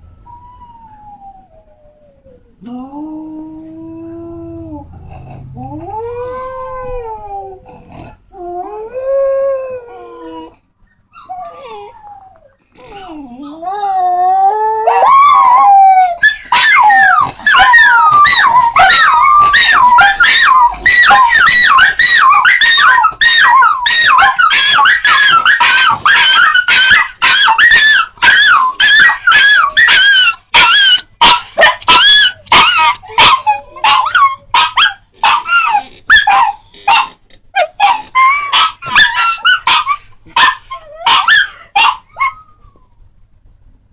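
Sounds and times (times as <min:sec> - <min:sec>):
dogs howling and yipping: 0:13.7 - 0:42.8.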